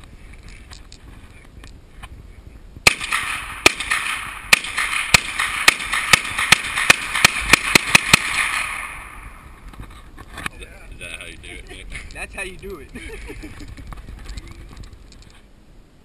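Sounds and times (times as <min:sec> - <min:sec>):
carbine gunshots: 0:02.8 - 0:09.6.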